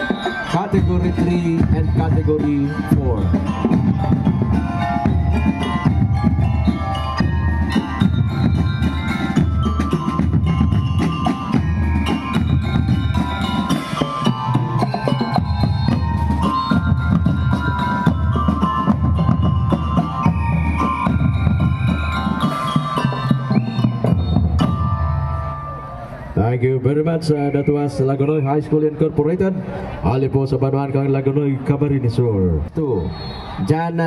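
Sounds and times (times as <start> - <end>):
bass and snare drums: 0.0 - 25.0
bell-like melody: 0.0 - 26.4.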